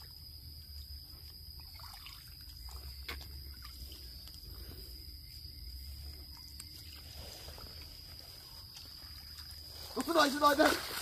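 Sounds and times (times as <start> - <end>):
high insect drone: 0.0 - 11.0.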